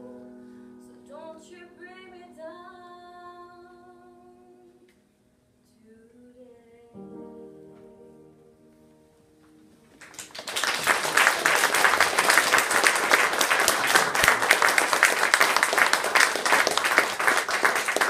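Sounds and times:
audience applause: 10.0s - 18.0s.

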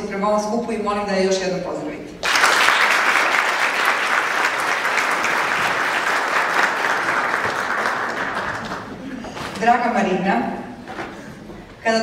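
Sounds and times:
audience applauding: 2.2s - 9.2s.

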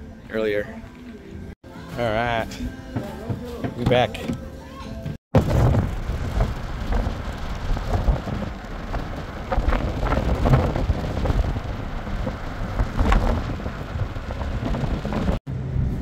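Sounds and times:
crackles and knocks: 5.1s - 15.4s
wind buffeting microphone: 5.3s - 16.0s.

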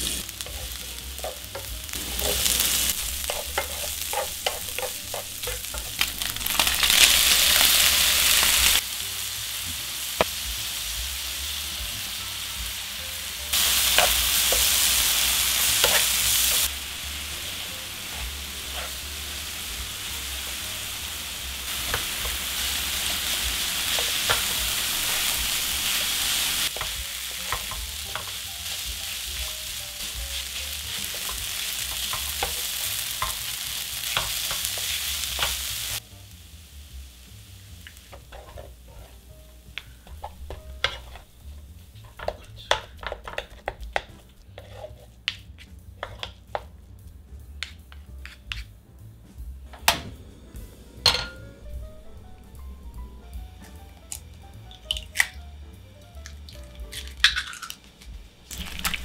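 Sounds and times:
spatula scraping a pan: 0.0s - 8.8s, 13.7s - 16.7s, 17.4s - 20.3s, 38.1s - 39.3s, 40.0s - 43.7s, 44.4s - 46.3s, 48.2s - 48.7s
food sizzling in oil: 0.0s - 43.7s, 50.9s - 55.2s, 56.2s - 59.0s.

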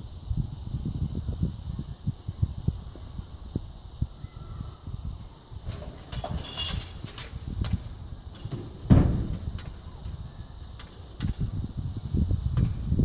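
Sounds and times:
metal chain rattling: 5.7s - 7.5s, 8.3s - 8.9s
heavy thump: 8.5s - 9.7s.

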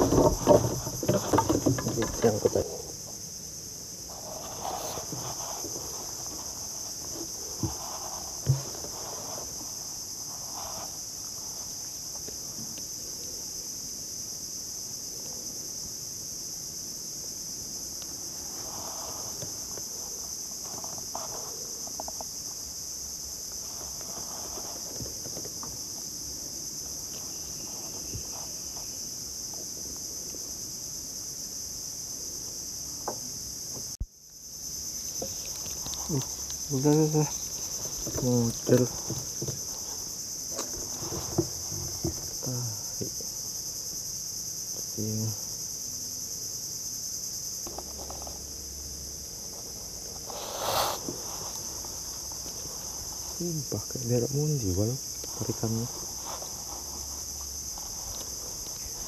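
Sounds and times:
faint knocks and clicks: 0.0s - 2.7s
insects shrilling: 0.0s - 14.9s, 16.4s - 59.0s.

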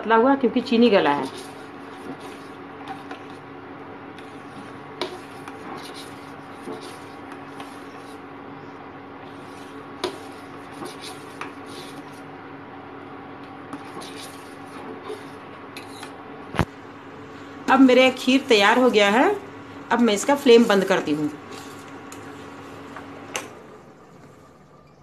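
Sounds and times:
steady hum: 0.0s - 25.0s
metal spoon scraping a pot: 1.1s - 3.4s, 4.1s - 8.3s, 9.2s - 12.3s, 13.7s - 16.2s, 21.4s - 22.4s.

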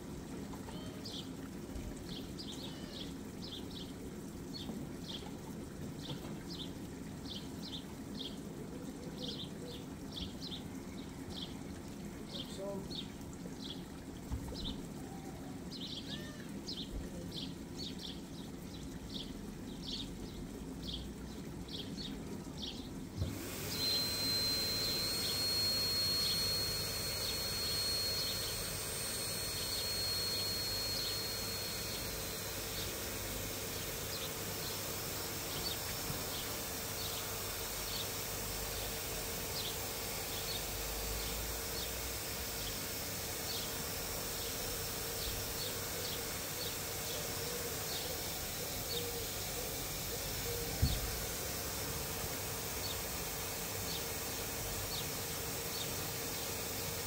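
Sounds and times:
pump humming and hissing: 0.0s - 57.0s
high whine: 23.2s - 51.7s.

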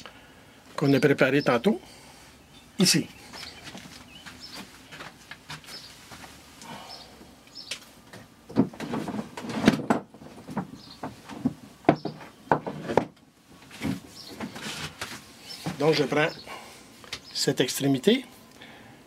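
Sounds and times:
handling knocks clicks and rustles: 7.6s - 16.0s.

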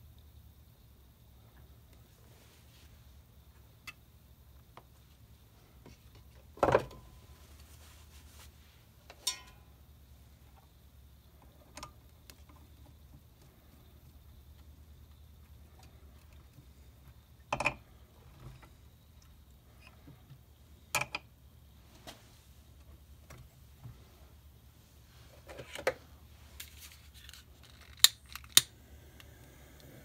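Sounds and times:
clicks and knocks on metal fittings: 9.1s - 9.6s, 17.4s - 20.0s, 20.9s - 21.3s.

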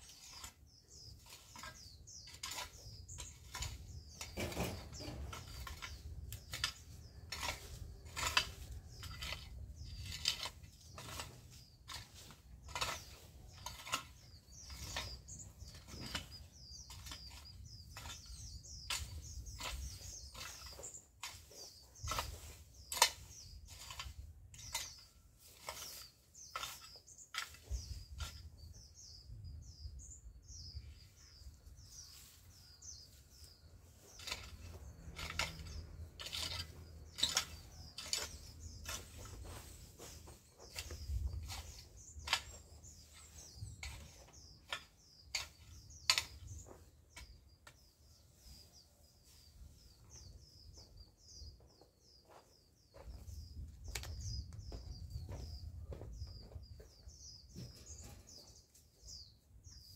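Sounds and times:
hoe chopping soil: 0.0s - 29.4s, 31.8s - 47.9s
small birds chirping: 0.0s - 59.9s.

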